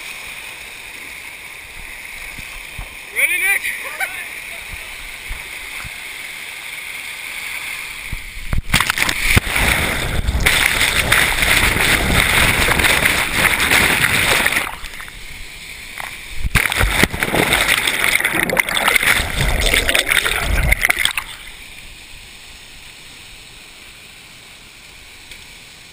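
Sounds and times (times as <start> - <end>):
waterfall rushing and splashing: 0.0 - 24.8
underwater bubbles hissing: 16.0 - 21.6.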